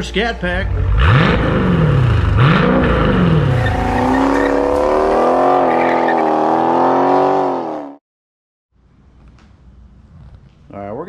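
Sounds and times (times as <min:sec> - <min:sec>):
steady engine drone: 0:00.0 - 0:05.5
car engine revving: 0:00.0 - 0:08.0.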